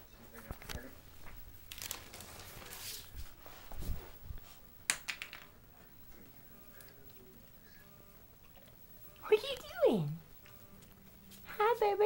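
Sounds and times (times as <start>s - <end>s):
puppy rustling on tile floor: 0.4s - 4.7s.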